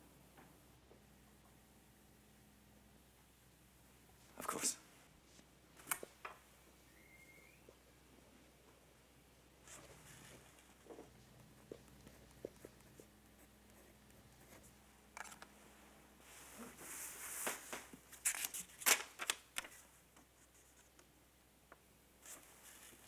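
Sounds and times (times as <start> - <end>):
paper rustling: 9.6 - 11.0, 16.4 - 21.0.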